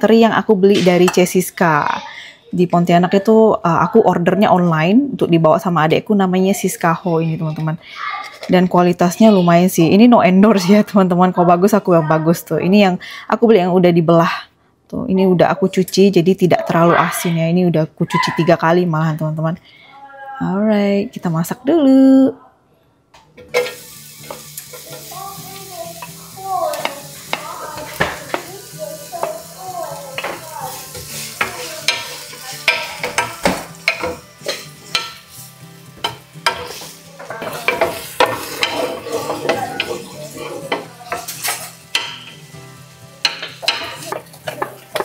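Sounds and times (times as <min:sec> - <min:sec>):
food sizzling in a hot pan: 0:23.4 - 0:45.0
spatula scraping a pan: 0:23.5 - 0:42.5, 0:43.2 - 0:45.0.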